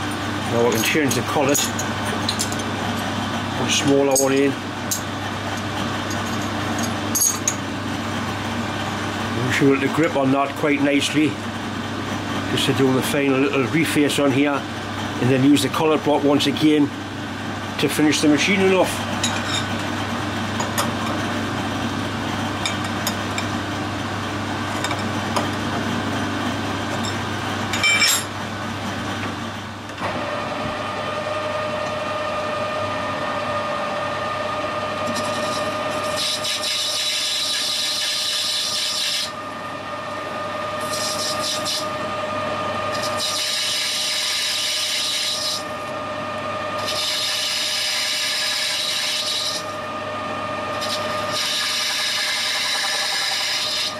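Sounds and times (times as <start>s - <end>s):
lathe whining: 0.0s - 53.9s
cutting tool hissing scrape: 40.8s - 41.9s, 42.9s - 45.7s, 46.8s - 49.7s, 50.8s - 53.9s.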